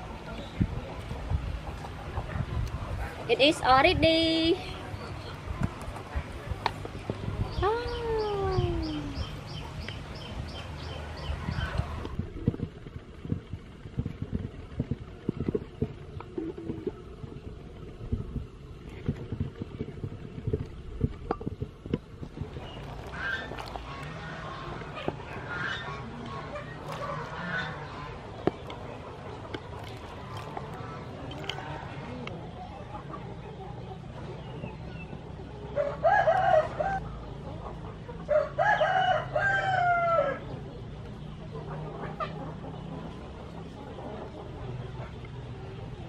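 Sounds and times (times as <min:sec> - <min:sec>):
soup boiling and bubbling: 0:12.4 - 0:25.2, 0:28.9 - 0:32.0
chicken clucking: 0:22.3 - 0:46.0
rooster crowing: 0:35.8 - 0:37.0, 0:38.3 - 0:40.4.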